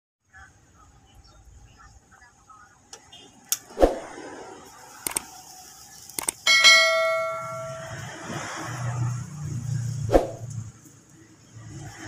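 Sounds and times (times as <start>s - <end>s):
paired clicks: 5.0s - 5.3s, 6.2s - 6.4s
bright bell ding: 6.5s - 8.3s.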